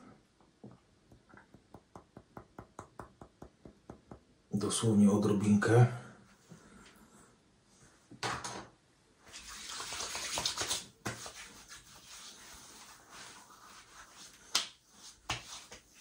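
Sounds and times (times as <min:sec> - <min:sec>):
water splashing from a tap: 0:09.3 - 0:11.0.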